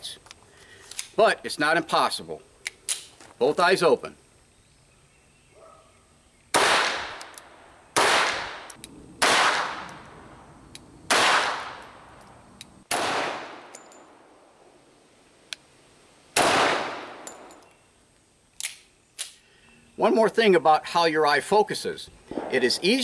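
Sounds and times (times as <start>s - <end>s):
pistol shots with echo: 6.5s - 7.3s, 8.0s - 10.0s, 11.1s - 11.8s, 12.9s - 13.7s, 16.4s - 17.5s.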